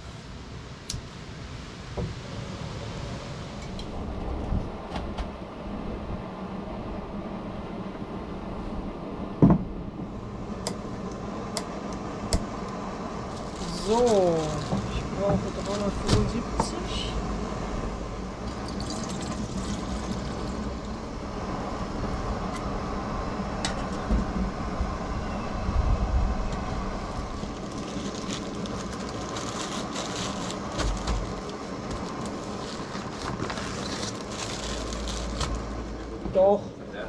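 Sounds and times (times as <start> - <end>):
water pouring and trickling: 18.4 - 21.0.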